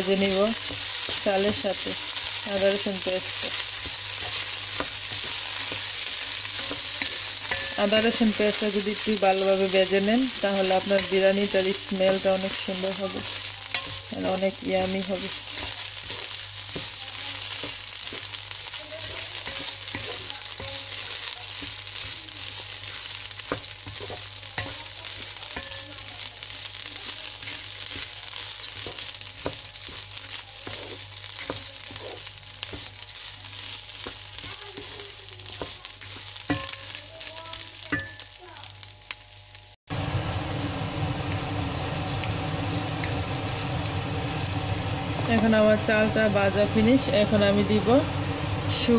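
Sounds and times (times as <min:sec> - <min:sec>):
rice sizzling in a pot: 0:00.0 - 0:48.9
spatula scraping a pot: 0:15.3 - 0:26.1, 0:26.8 - 0:37.1.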